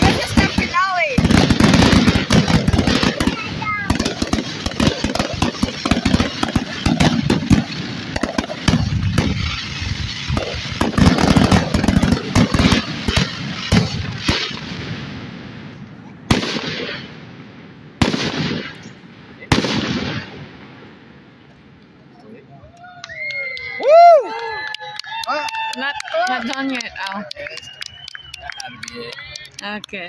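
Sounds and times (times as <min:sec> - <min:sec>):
fireworks bursting: 0:00.0 - 0:22.4.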